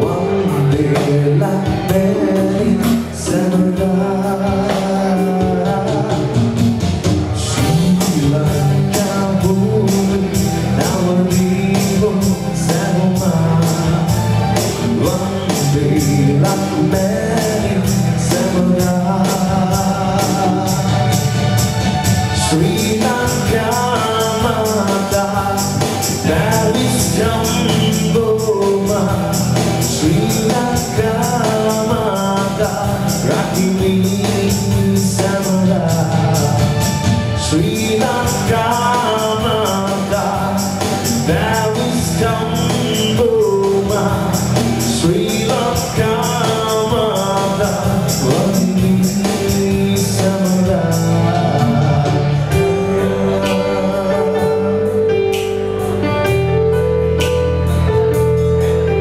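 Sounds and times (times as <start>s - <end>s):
man singing: 0.0s - 57.0s
live band playing: 0.0s - 59.0s.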